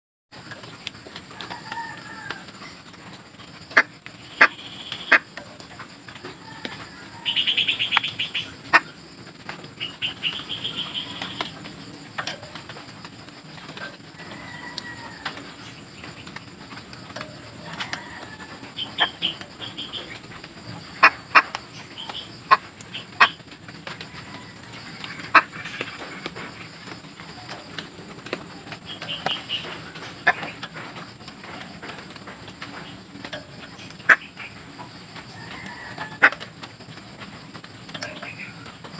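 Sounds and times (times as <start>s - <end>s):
wings fluttering: 0.4s - 38.9s
soft bird calls: 6.4s - 9.0s, 9.7s - 12.7s.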